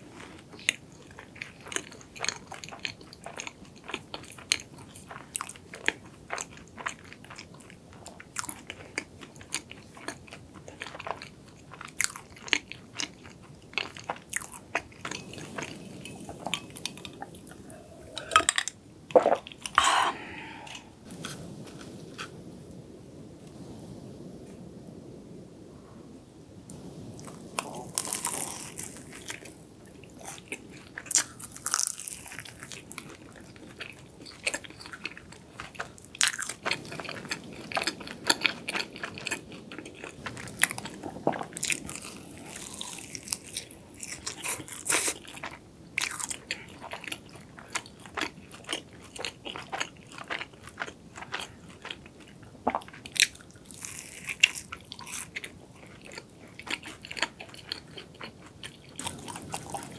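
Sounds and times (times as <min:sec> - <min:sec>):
chewing with crisp crackles: 0:00.0 - 0:59.9
crunchy bite into pastry: 0:27.2 - 0:52.0, 0:52.7 - 0:58.0, 0:59.0 - 0:59.9.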